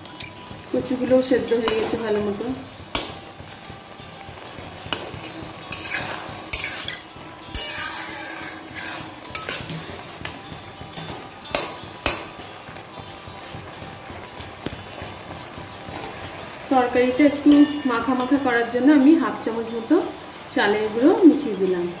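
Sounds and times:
metal spatula scraping a pan: 4.8s - 12.4s.

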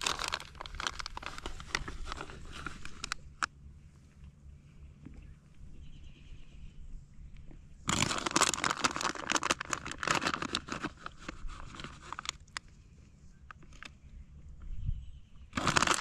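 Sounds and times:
plastic bag crinkling: 0.0s - 3.5s, 7.9s - 12.6s, 15.6s - 16.0s.

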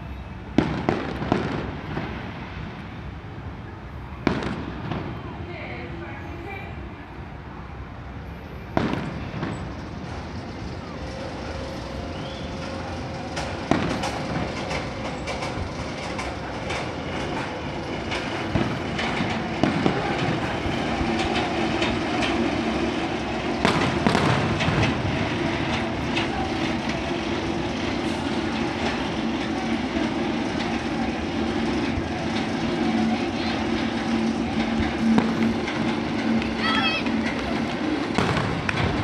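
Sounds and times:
roller coaster rumbling and clattering: 0.0s - 39.0s
firework bangs: 0.5s - 2.8s, 4.2s - 5.7s, 8.7s - 12.3s, 13.4s - 15.9s, 17.8s - 39.0s.

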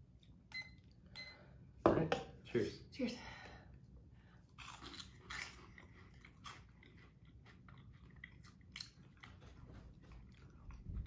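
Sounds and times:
cheese balls crunching: 4.4s - 10.8s.

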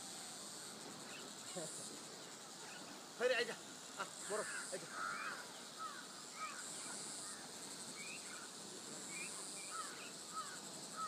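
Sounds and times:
insects droning high-pitched: 0.0s - 11.0s.

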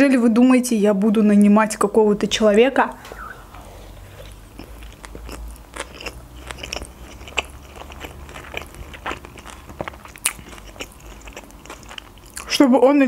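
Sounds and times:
person chewing: 3.5s - 12.5s.

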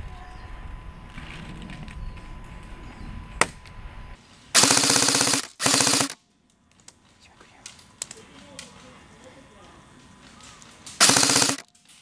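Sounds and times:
airsoft rifle bursts: 4.6s - 6.2s, 11.0s - 11.7s.

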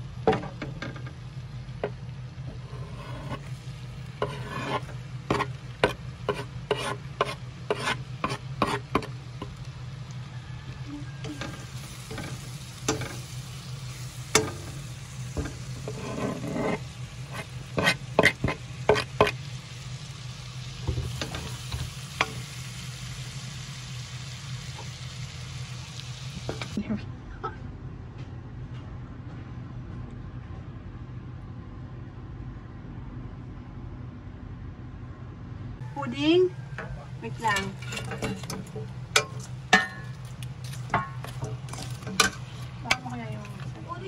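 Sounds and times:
low hum: 0.0s - 44.0s
butter sizzling in a pan: 2.0s - 26.8s
metal spoon scraping a pan: 2.5s - 9.6s, 11.2s - 19.5s, 36.8s - 43.8s.

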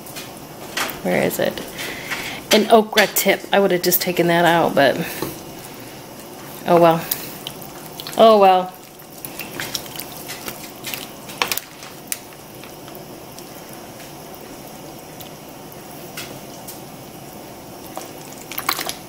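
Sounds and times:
wooden spoon stirring liquid: 3.9s - 16.8s, 17.4s - 19.0s.

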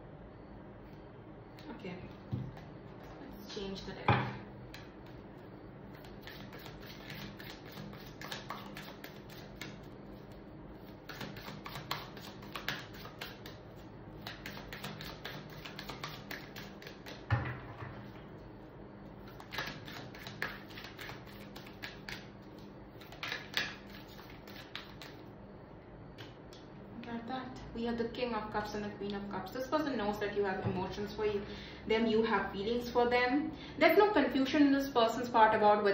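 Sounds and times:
faint steady hum: 0.0s - 35.9s
cards being shuffled: 14.2s - 17.2s, 19.3s - 25.2s.

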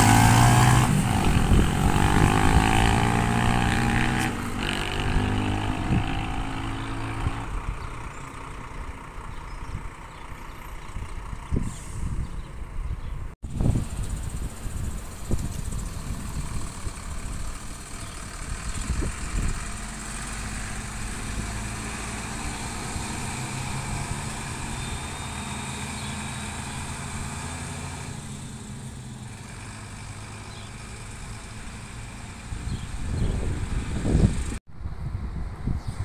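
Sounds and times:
bus diesel engine: 0.0s - 35.7s
wind buffeting microphone: 0.4s - 8.2s, 10.8s - 24.8s, 32.4s - 36.0s.

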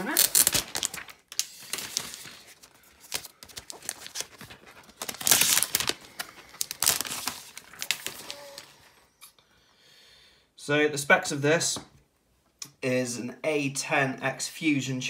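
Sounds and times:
plastic wrap crinkling: 0.0s - 8.9s.

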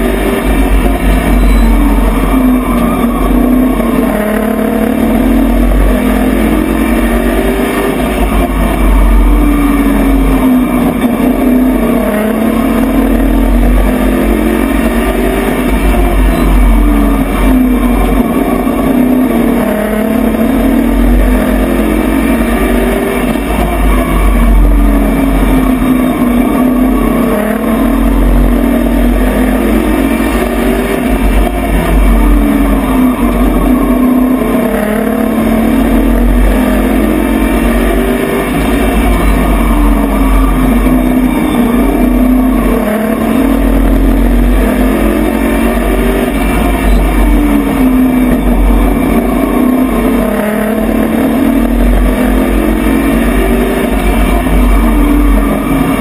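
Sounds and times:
race truck engine revving: 0.0s - 56.0s.

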